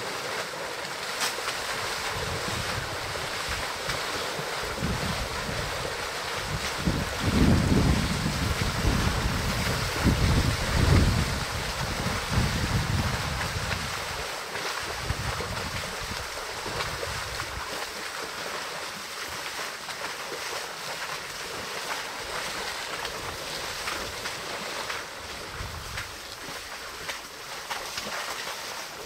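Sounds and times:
elephants splashing through water: 0.0 - 29.0
rushing water: 0.0 - 29.0
wind rumbling on microphone: 1.7 - 17.8, 25.2 - 27.1.

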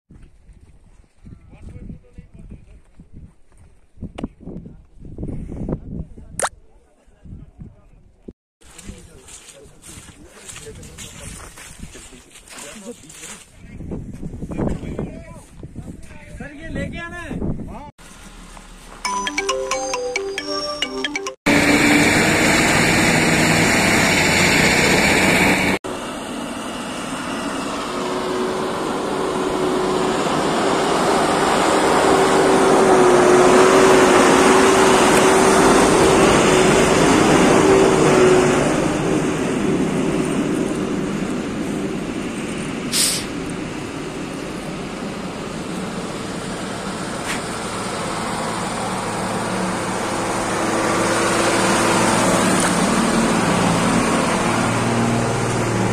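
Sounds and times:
heavy machinery and trucks running: 18.1 - 55.9.

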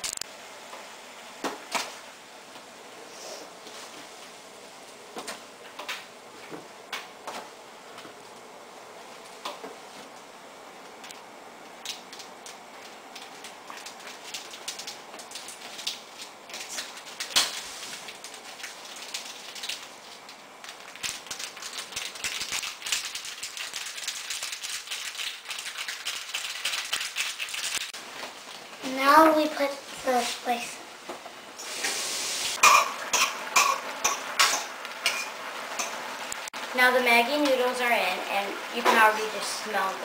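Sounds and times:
boiling water bubbling: 10.3 - 30.0.

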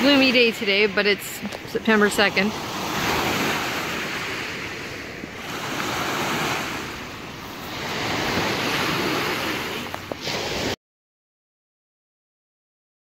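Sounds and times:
waves washing on pebble beach: 0.0 - 10.8.

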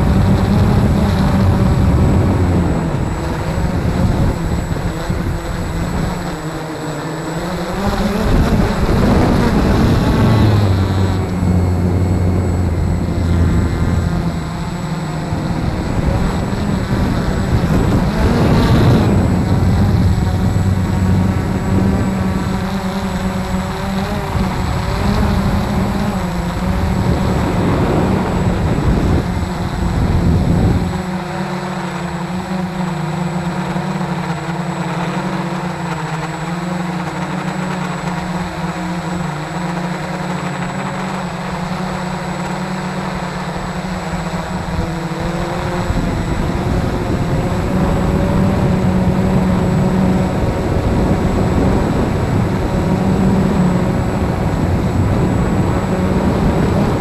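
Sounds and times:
drone propellers whining: 0.0 - 57.0
low rushing noise: 8.3 - 31.0.

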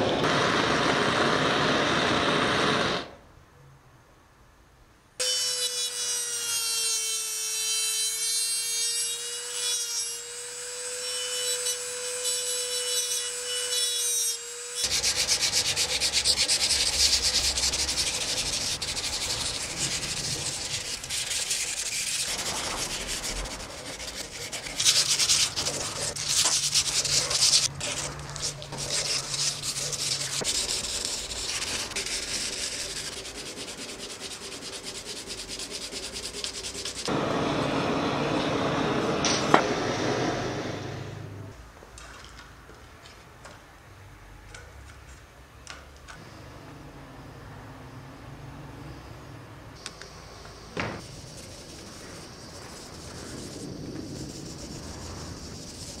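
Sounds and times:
hand sanding steel: 14.8 - 37.2, 51.0 - 56.0.

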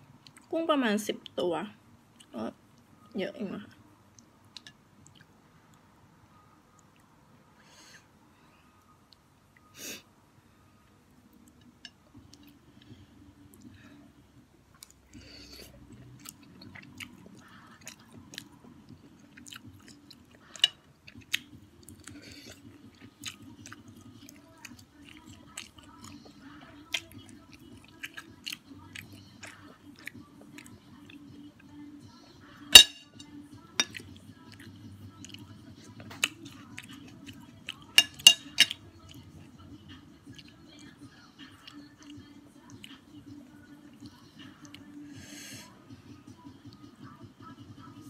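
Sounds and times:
chewing and mouth smacks: 4.1 - 5.9, 14.7 - 15.2, 15.8 - 31.2, 33.8 - 39.2, 39.9 - 43.1.

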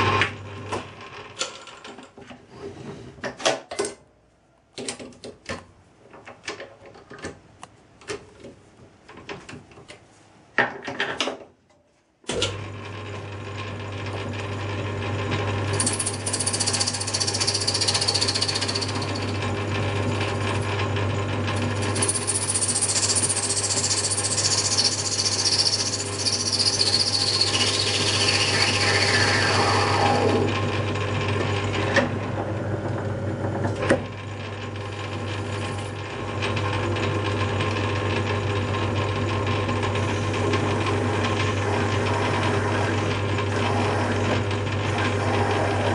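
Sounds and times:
lathe motor hum: 13.6 - 45.9.

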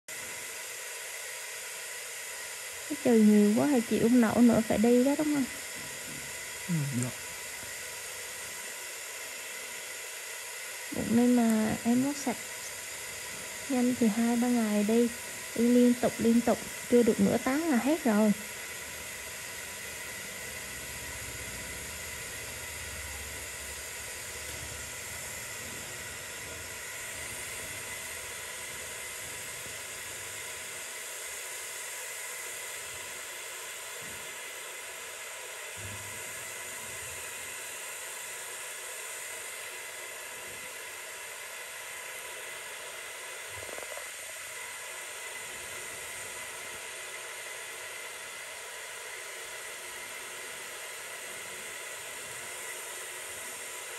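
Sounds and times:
steady hiss: 2.9 - 53.9.

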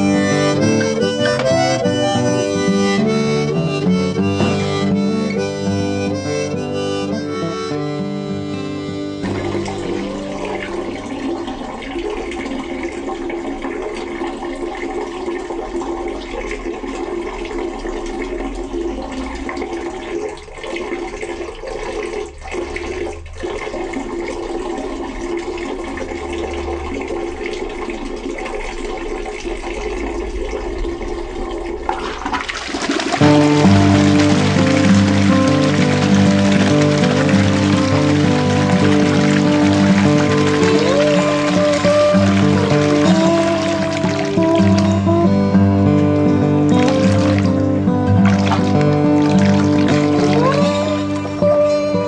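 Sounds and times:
music: 0.0 - 11.0, 33.2 - 52.0
toilet flushing and refilling: 0.0 - 52.0.

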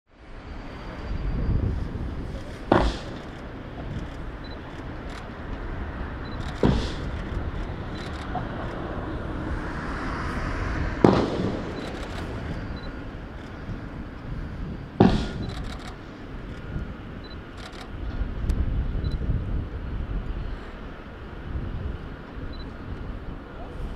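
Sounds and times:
steady outdoor rumble: 0.1 - 23.9
sharp bangs with echo: 2.7 - 3.3.

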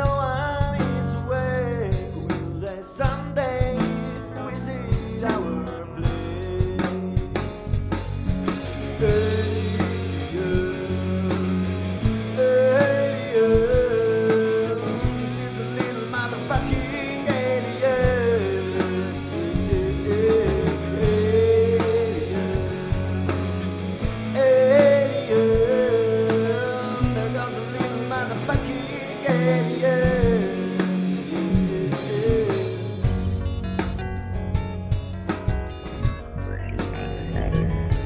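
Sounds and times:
rock band with guitar: 0.0 - 38.0.

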